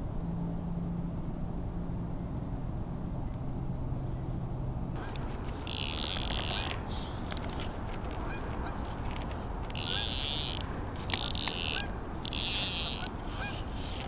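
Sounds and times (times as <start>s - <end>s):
fly reel ratcheting: 5.0s - 14.0s.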